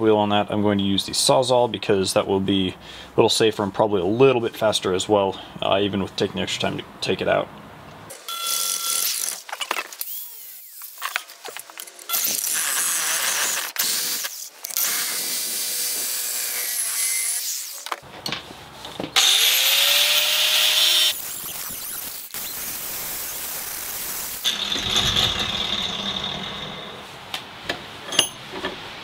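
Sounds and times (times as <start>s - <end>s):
reciprocating saw cutting metal: 19.2s - 27.2s.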